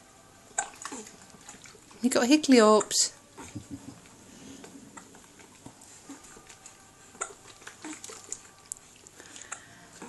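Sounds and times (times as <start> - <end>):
bathwater splashing: 0.5 - 9.7.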